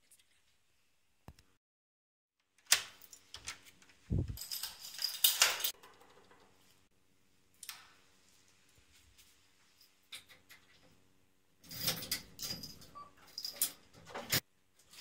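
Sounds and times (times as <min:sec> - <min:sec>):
keys jangling: 0:04.2 - 0:05.7, 0:11.7 - 0:14.0.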